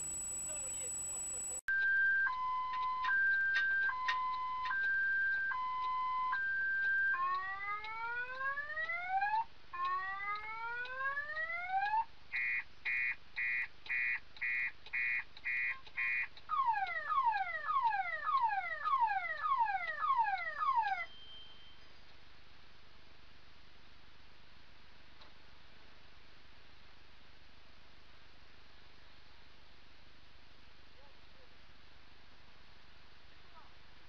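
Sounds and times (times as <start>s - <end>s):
car alarm siren: 0.0s - 21.7s.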